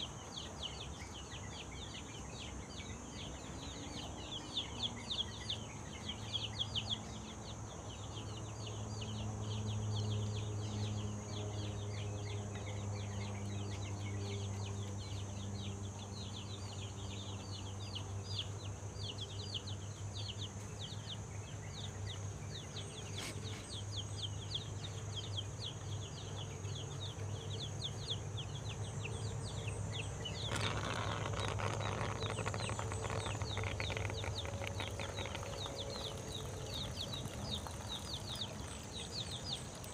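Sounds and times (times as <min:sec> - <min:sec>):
chicks peeping: 0:09.8 - 0:39.9.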